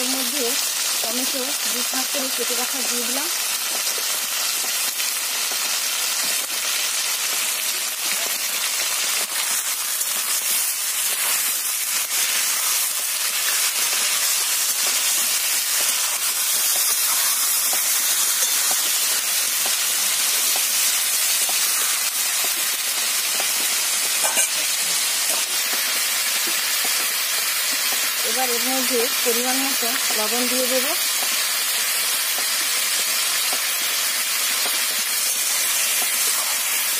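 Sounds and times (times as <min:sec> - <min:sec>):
food sizzling in hot oil: 0:00.0 - 0:36.9.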